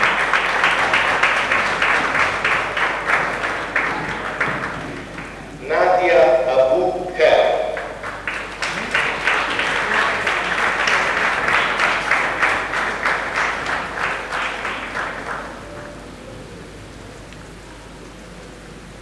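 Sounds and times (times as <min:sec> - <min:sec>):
audience applauding: 0:00.0 - 0:05.8, 0:07.3 - 0:16.3.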